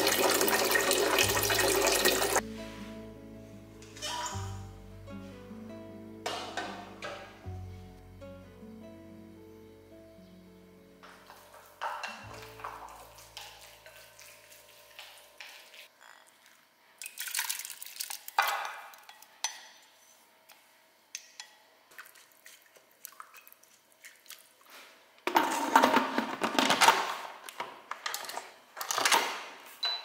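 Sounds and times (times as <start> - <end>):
stirring in metal pot: 11.3 - 16.3.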